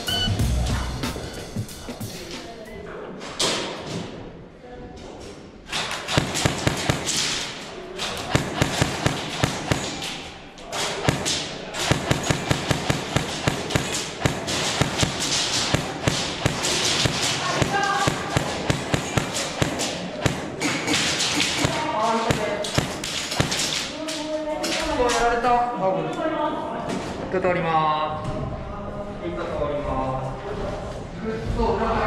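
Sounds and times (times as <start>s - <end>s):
airsoft rifle firing bursts: 6.1s - 7.4s, 8.2s - 10.1s, 10.8s - 23.8s.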